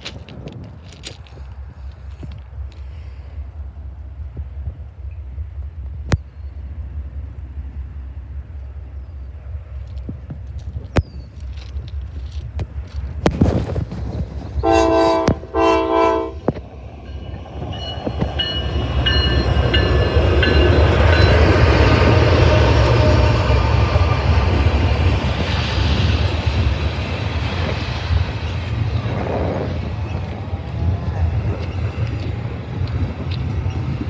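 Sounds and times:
locomotives rumbling past: 0.0 - 34.0
train horn blasts: 14.6 - 16.6
freight cars rolling: 16.5 - 34.0.

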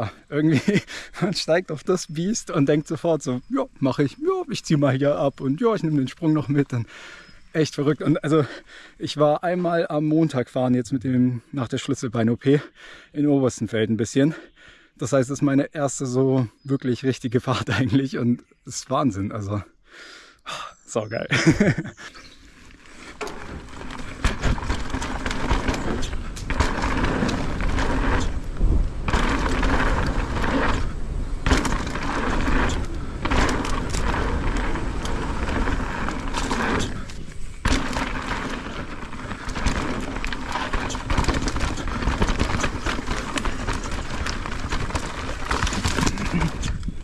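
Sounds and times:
tyres rumbling over dirt: 0.0 - 10.8, 21.3 - 47.0
bike knocks and rattles: 23.0 - 47.0.

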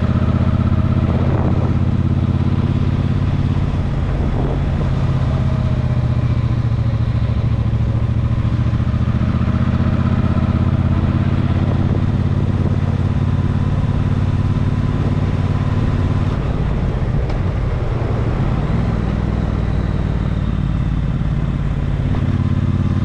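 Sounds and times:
vehicle engine droning: 0.0 - 23.0.

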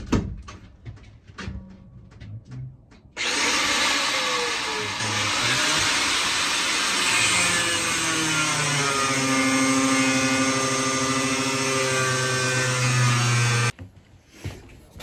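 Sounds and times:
angle grinder cutting metal: 3.2 - 13.7.

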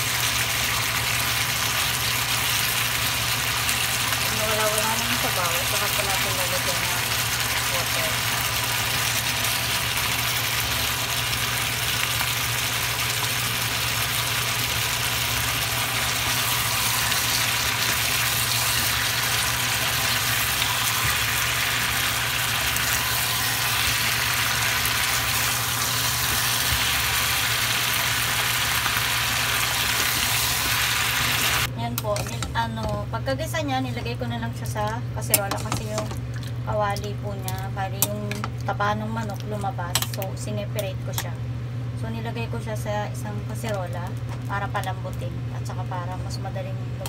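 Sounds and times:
chicken sizzling in a frying pan: 0.0 - 31.7
spatula turning food: 15.4 - 33.0.

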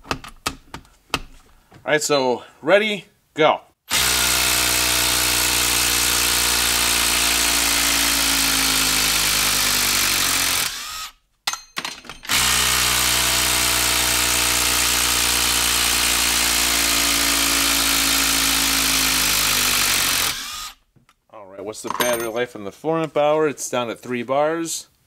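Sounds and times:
impact driver hammering: 21.9 - 22.4.

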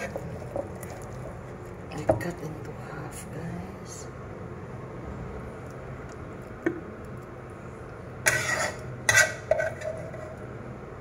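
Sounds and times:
spoon scraping plate: 8.2 - 10.4.

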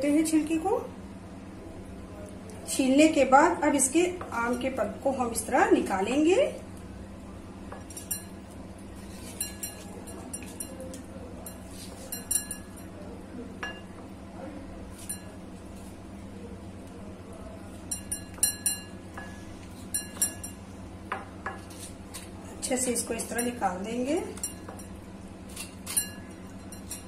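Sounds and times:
steady low hum: 0.0 - 27.0
knife clinking on glass bowl: 7.7 - 12.9, 14.9 - 15.4, 17.8 - 20.6, 23.2 - 23.6, 24.3 - 27.0.

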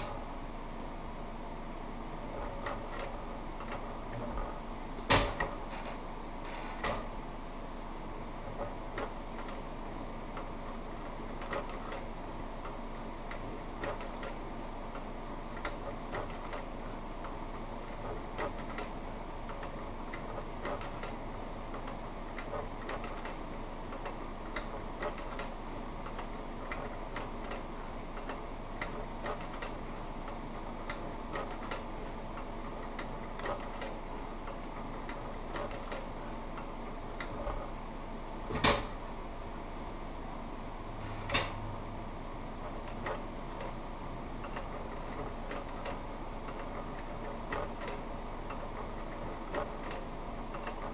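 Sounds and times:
steady machine hum: 0.0 - 50.9.

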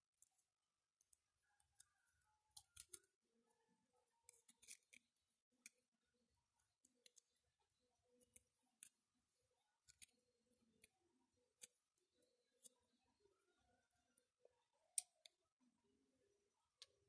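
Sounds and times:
paper crinkling and clicking: 1.0 - 3.2, 4.3 - 5.8.

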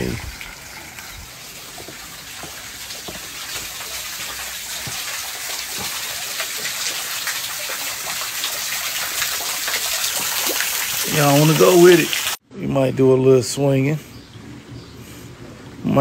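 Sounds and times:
rushing water: 0.0 - 12.4.

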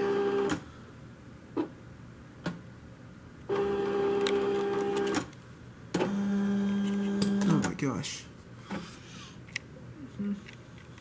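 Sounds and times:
die cutter motors whining: 6.0 - 7.7.

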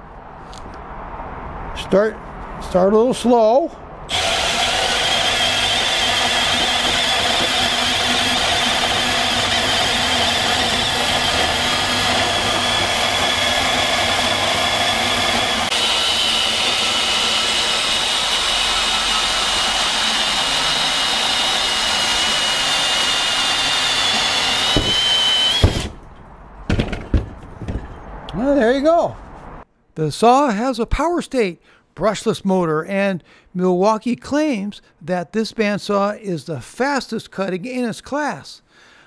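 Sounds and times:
band saw cutting steel: 4.1 - 26.2.

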